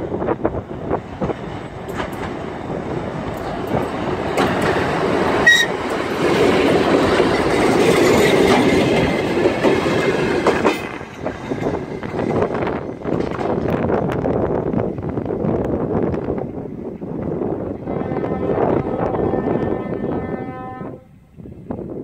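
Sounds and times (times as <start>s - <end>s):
train wheels clacking over rail joints: 1.2s - 14.2s.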